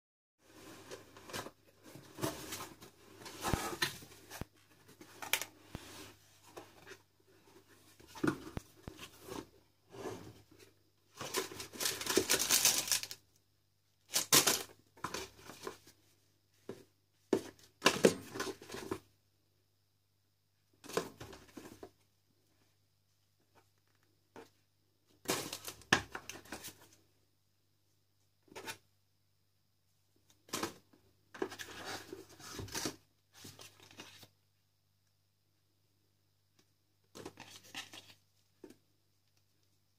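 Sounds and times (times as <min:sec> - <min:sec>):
cardboard and paper rustling: 0:00.4 - 0:13.2.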